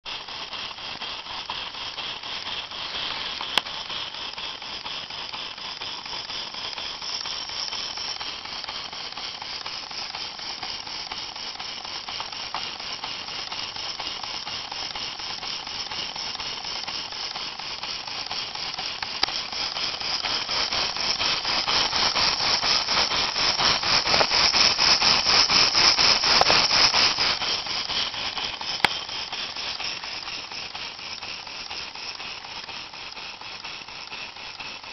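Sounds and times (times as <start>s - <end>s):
model steam engine running: 0.0s - 34.9s
sharp clicks: 3.0s - 3.9s, 22.5s - 27.7s, 28.6s - 30.4s.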